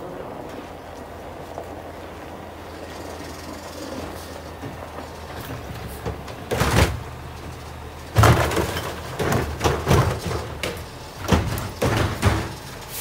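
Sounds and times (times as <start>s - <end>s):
truck engine running: 0.0s - 13.0s
trash cart bangs and clatters: 4.2s - 13.0s.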